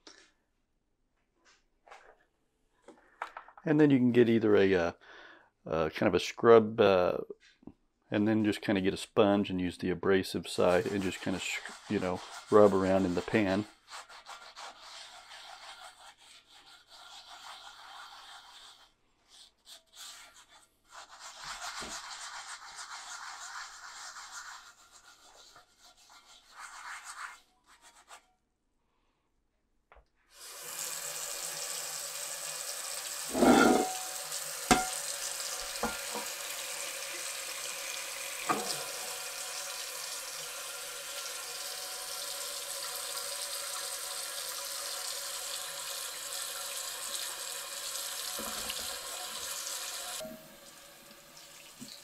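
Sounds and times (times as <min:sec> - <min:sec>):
sponge scrubbing cast iron skillet: 0:10.5 - 0:28.2, 0:33.3 - 0:45.7, 0:46.3 - 0:50.7
tap water running onto pan: 0:30.4 - 0:52.0
knocks on pan: 0:34.7 - 0:35.0.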